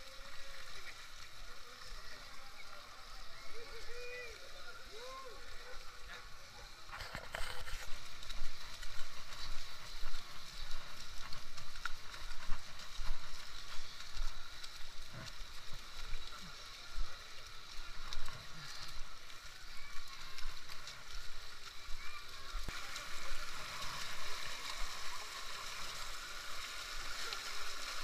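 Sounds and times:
faint voices: 0.0 - 28.0
footsteps on dirt trail: 6.9 - 15.8.

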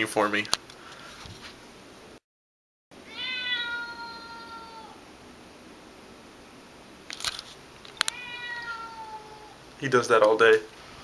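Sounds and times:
cat meowing: 3.0 - 5.0, 8.0 - 9.6.

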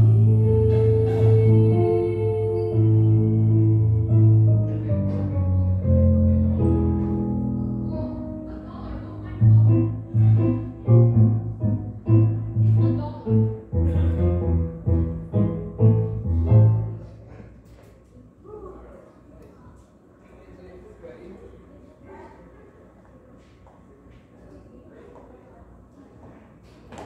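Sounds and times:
keyboard playing chords: 0.0 - 17.2
low bass notes: 0.0 - 17.2.

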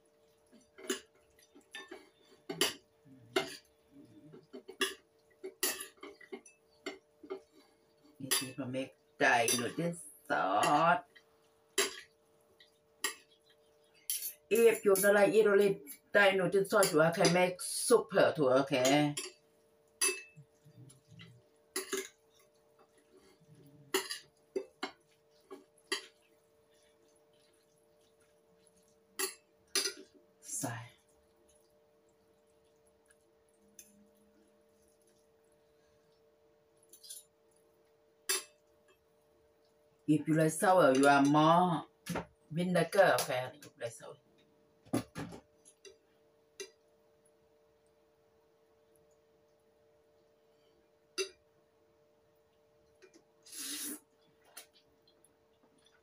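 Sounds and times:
faint steady hum: 0.0 - 56.0
cutlery clinking against a bowl: 0.7 - 3.7, 4.3 - 7.5, 9.4 - 9.8, 11.8 - 12.1, 14.1 - 15.2, 20.0 - 20.4, 21.8 - 22.2, 23.9 - 26.2, 29.2 - 30.2, 38.3 - 38.6, 51.2 - 51.4
cutlery clinking on ceramic plate: 20.0 - 20.4, 21.8 - 22.2.

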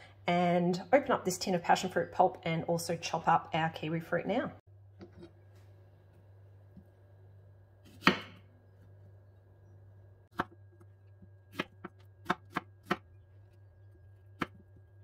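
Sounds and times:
knife chopping on board: 7.9 - 8.4, 14.3 - 14.6.

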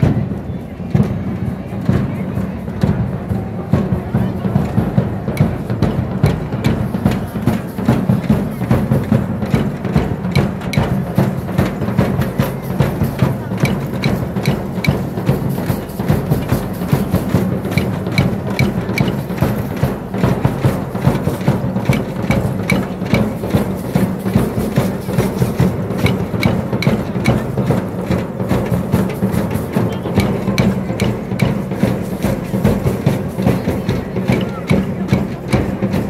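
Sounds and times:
crowd hubbub: 0.0 - 36.0
fast drumming: 0.0 - 36.0.

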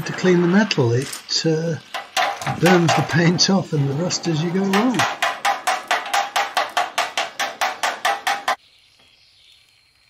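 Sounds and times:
faint steady hiss: 0.0 - 10.0
rapid metallic taps: 1.8 - 8.6.

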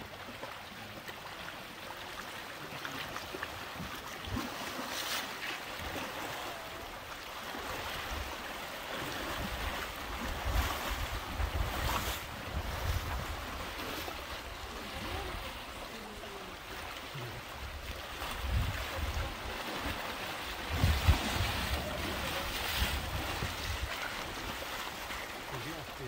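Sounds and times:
elephants wading through water: 0.0 - 26.0
river water flowing: 0.0 - 26.0
wind gusting on microphone: 18.4 - 19.4, 20.6 - 23.9.

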